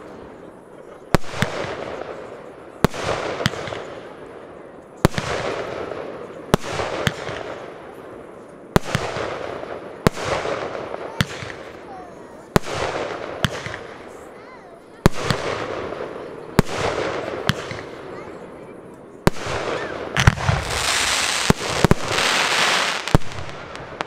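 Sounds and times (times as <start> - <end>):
firework bangs: 5.0 - 7.8, 8.7 - 18.6, 19.2 - 24.0
firework hiss: 19.3 - 24.0.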